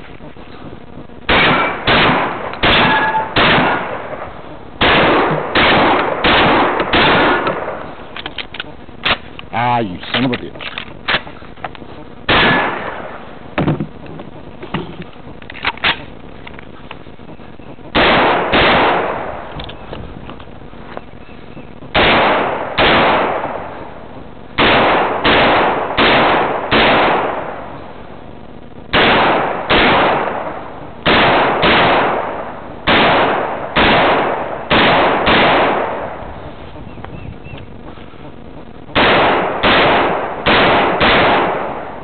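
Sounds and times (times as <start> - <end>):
shotgun shots with echo: 1.3 - 8.0, 12.3 - 13.2, 17.9 - 19.6, 21.9 - 23.8, 24.6 - 27.7, 28.9 - 36.3, 38.9 - 42.0.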